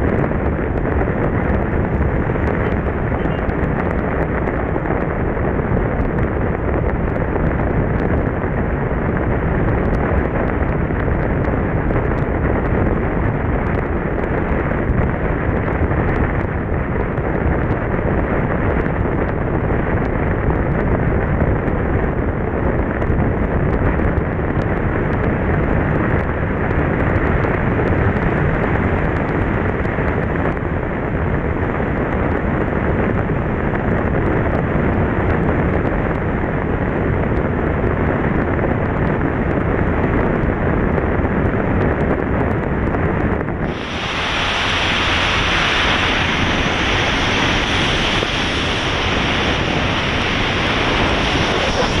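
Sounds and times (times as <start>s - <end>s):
wind rushing over microphone: 0.0s - 52.0s.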